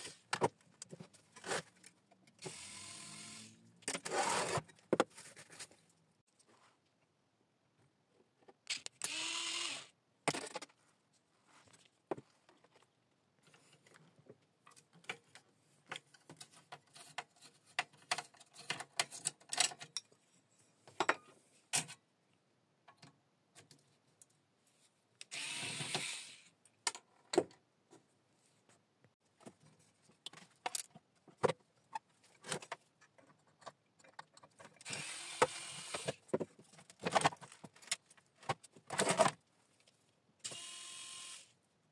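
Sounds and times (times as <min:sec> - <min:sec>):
electric screwdriver running: 0:09.0 - 0:09.9, 0:25.3 - 0:26.4, 0:40.5 - 0:41.5
clatter of metal parts and screws: 0:13.4 - 0:20.3, 0:29.4 - 0:39.9.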